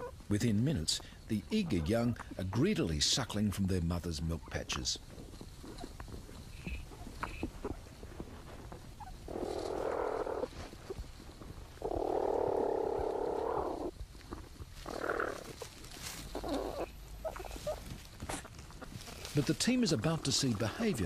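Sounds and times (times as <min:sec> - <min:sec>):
rough noisy animal sounds: 0:00.0 - 0:21.0
small clicks and scratches: 0:05.1 - 0:11.7.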